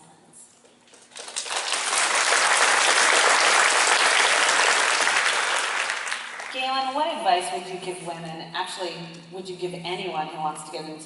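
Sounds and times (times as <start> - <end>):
audience applauding: 1.0 - 6.6.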